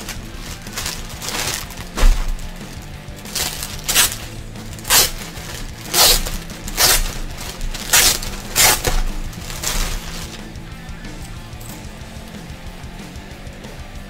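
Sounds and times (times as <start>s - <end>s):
plastic bag crinkling: 0.0s - 10.5s
quiet background music: 0.0s - 14.0s.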